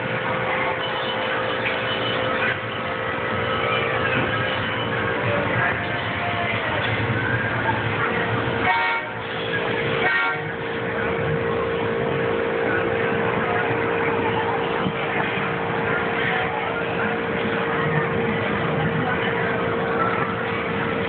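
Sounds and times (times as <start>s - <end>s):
crowd chatter: 0.0s - 21.0s
steady hum: 0.0s - 21.0s
kiddie train horn toots: 8.6s - 10.6s.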